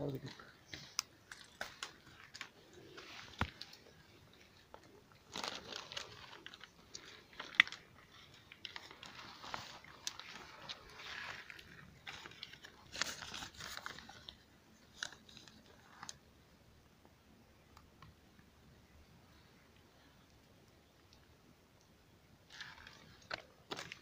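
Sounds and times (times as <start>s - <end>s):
rustling and crunching of hands: 0.1s - 16.3s, 22.4s - 24.0s.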